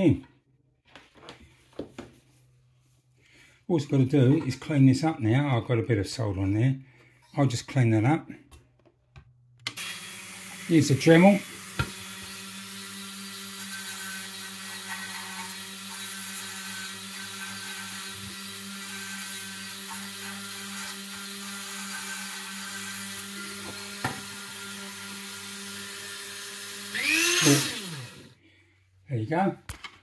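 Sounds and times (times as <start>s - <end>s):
rotary tool grinding: 9.8s - 28.4s.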